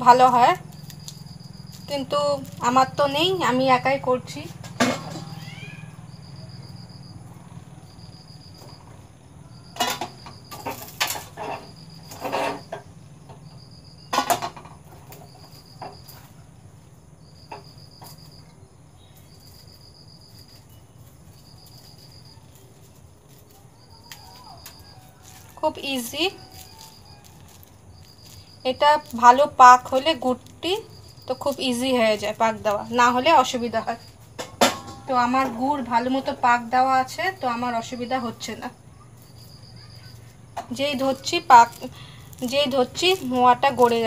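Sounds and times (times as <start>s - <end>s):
cricket chirping: 0.0s - 44.0s
knocks and clinks on bench: 4.6s - 5.4s, 34.4s - 35.1s.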